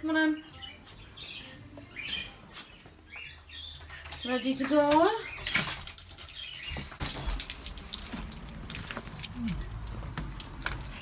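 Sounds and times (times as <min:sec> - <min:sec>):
small metal pieces jingling: 0:03.2 - 0:11.0.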